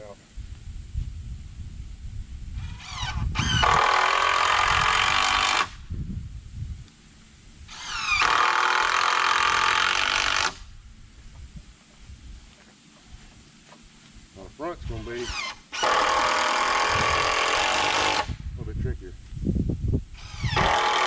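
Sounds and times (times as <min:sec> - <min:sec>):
cordless drill driving screws: 0:02.6 - 0:05.8, 0:07.7 - 0:10.6, 0:15.0 - 0:18.4, 0:20.2 - 0:21.0.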